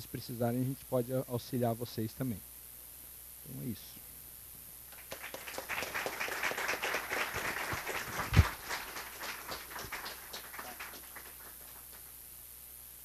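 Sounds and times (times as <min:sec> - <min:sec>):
audience applause: 0:04.9 - 0:12.1.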